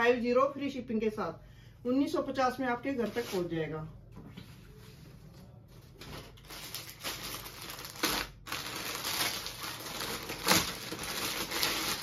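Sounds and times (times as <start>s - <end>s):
plastic packaging crinkling: 5.9s - 12.0s.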